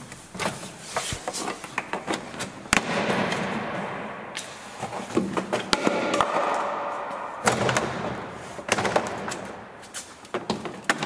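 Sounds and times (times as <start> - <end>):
plastic rustling and scraping: 0.0 - 3.4.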